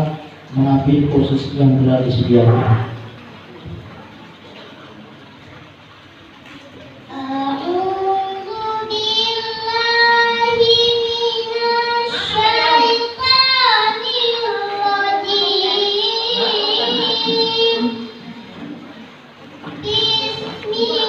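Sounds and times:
boy chanting melodically: 0:07.1 - 0:18.2, 0:19.7 - 0:21.0.

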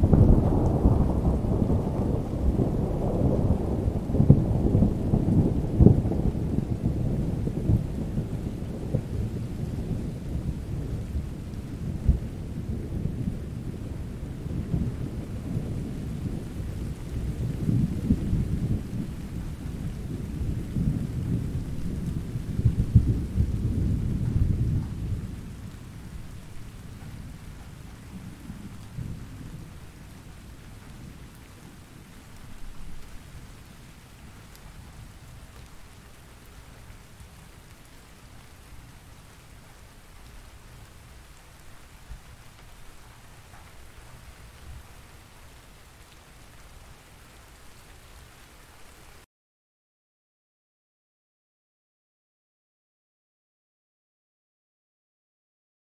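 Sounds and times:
thunder rolling: 0:00.0 - 0:31.8
steady rain: 0:00.0 - 0:49.3.

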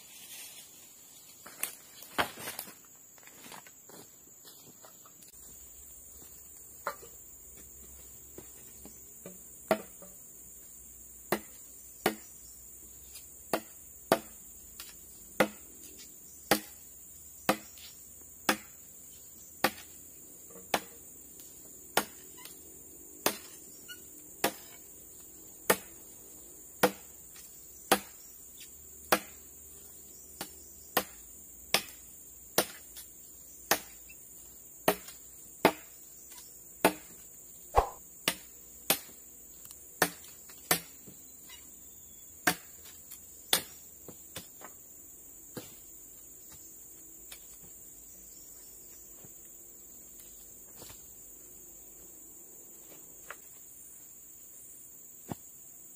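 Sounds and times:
machete chopping into wood: 0:09.2 - 0:10.1, 0:11.3 - 0:12.3, 0:13.5 - 0:15.7, 0:16.4 - 0:16.8, 0:17.4 - 0:18.8, 0:19.6 - 0:19.9, 0:20.5 - 0:21.0, 0:21.9 - 0:22.2, 0:23.2 - 0:23.6, 0:24.4 - 0:24.8, 0:25.7 - 0:25.9, 0:26.8 - 0:28.2, 0:29.1 - 0:29.4, 0:30.4 - 0:33.0, 0:33.7 - 0:34.1, 0:34.8 - 0:36.0, 0:36.8 - 0:37.2, 0:37.8 - 0:39.2, 0:40.0 - 0:41.2, 0:42.4 - 0:42.9, 0:43.5 - 0:44.6.

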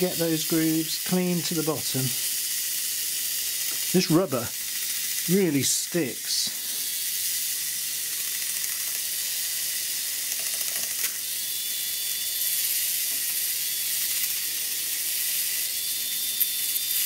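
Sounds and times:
model train motor whine: 0:00.0 - 0:17.0.

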